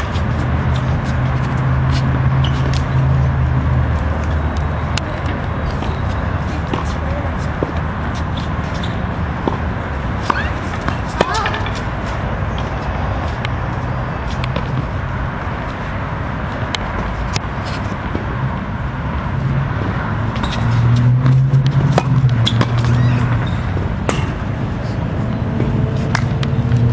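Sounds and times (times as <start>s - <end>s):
tennis ball bounces: 0.0s - 13.6s, 14.2s - 15.0s, 19.8s - 24.8s, 25.4s - 26.9s
outdoor background noise: 0.0s - 26.9s
tennis racket strikes: 24.0s - 24.5s.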